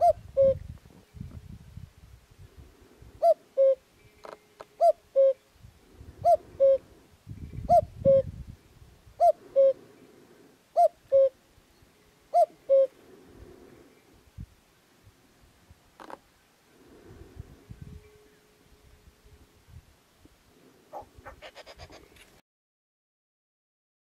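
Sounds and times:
cuckoo calling: 0.0s - 0.6s, 3.2s - 5.5s, 6.2s - 8.3s, 9.2s - 9.8s, 10.7s - 13.0s.

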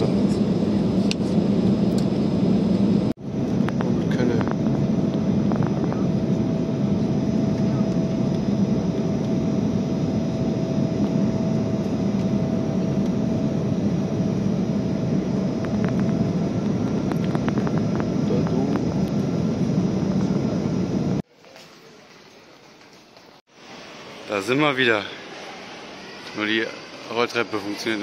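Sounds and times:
faint whine: 0.0s - 21.2s
jet airliner cabin noise: 0.0s - 21.3s.

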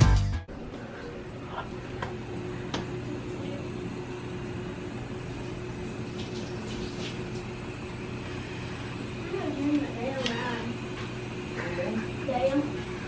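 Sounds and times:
low household hum: 0.0s - 13.0s.

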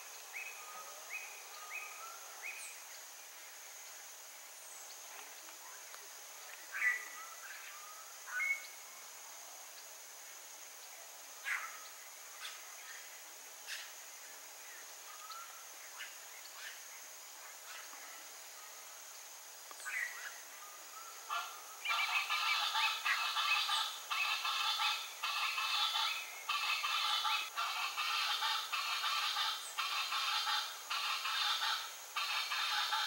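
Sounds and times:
high-pitched insect drone: 15.2s - 33.0s.

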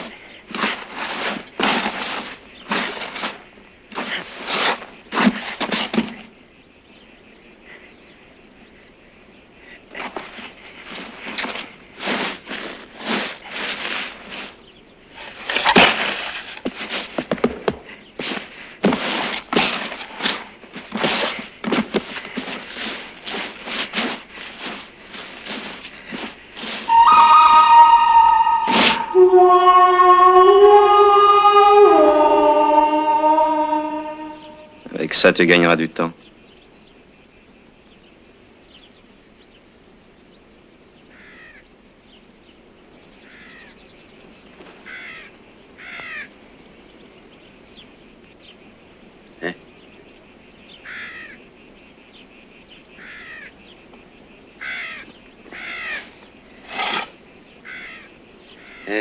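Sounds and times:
dirt being scraped and shoveled: 0.5s - 6.2s, 10.9s - 14.6s, 15.2s - 26.9s, 56.6s - 57.2s
crows cawing: 41.1s - 41.6s, 43.2s - 43.7s, 44.8s - 46.3s, 50.8s - 51.4s, 53.0s - 53.6s, 54.6s - 56.1s, 56.8s - 59.0s.

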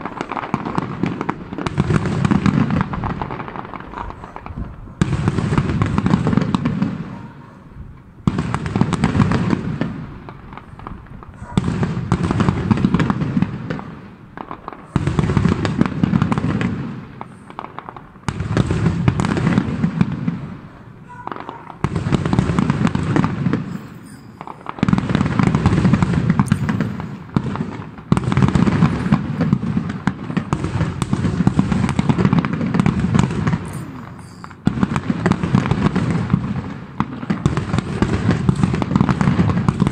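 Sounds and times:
fireworks crackle and rumble: 0.0s - 39.9s
firework shell bursts: 21.4s - 35.0s.

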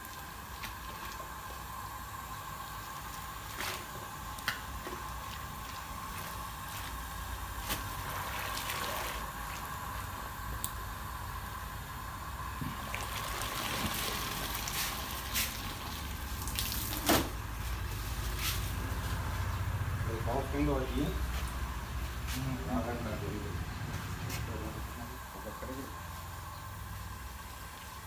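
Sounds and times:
faint steady hum: 0.0s - 28.0s
liquid sloshing and dripping: 2.8s - 7.0s, 7.6s - 9.7s, 12.6s - 17.4s.

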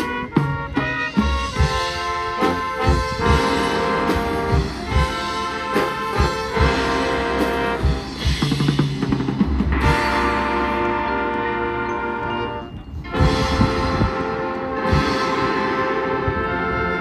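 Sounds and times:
brass holding chords: 0.0s - 8.7s, 9.6s - 17.0s
drum and percussion hits: 2.8s - 10.4s.

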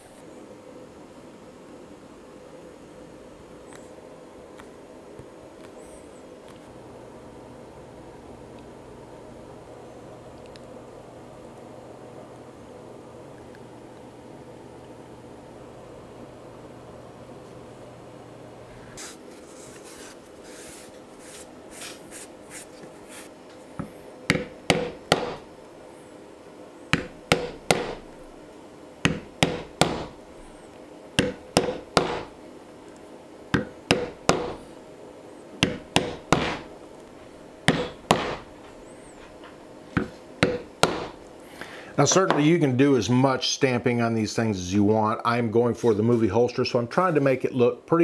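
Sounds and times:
mallet tapping metal stamping tool: 24.3s - 25.4s, 26.9s - 28.0s, 29.0s - 30.2s, 31.2s - 32.3s, 33.6s - 34.6s, 35.6s - 36.7s, 37.7s - 38.5s, 40.0s - 41.2s.

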